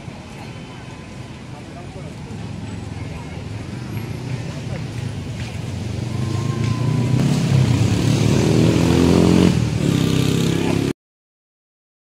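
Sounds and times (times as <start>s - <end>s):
vehicle engine passing: 4.0s - 10.9s.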